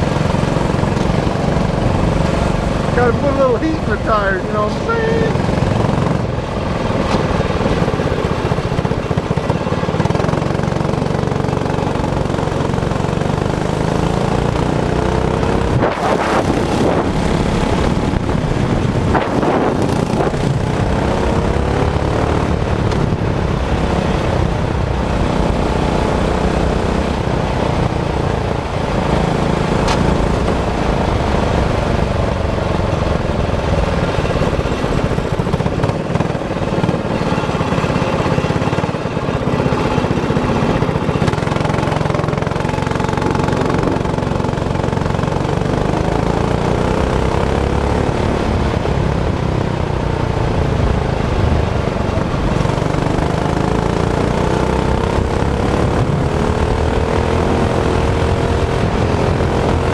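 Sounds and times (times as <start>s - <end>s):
kart engine running: 0.0s - 59.9s.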